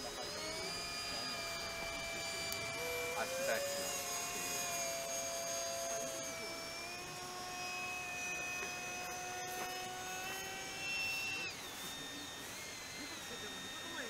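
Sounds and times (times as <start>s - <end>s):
electric ducted fan whining: 0.0s - 14.0s.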